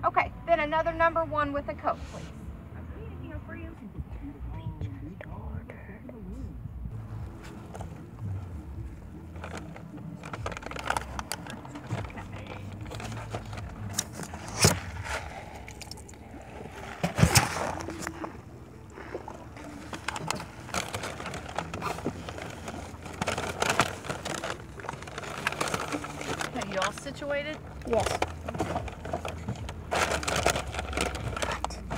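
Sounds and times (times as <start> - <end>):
low vehicle hum: 0.0 - 31.9
paper bag rustling: 7.0 - 31.9.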